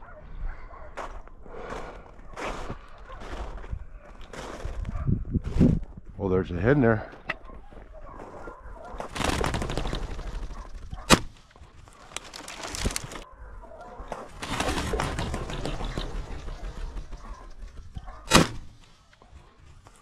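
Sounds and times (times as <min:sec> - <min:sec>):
bird wings fluttering: 0:08.9 - 0:13.3, 0:14.0 - 0:20.0
shotgun shots: 0:11.1 - 0:11.5, 0:16.7 - 0:19.1.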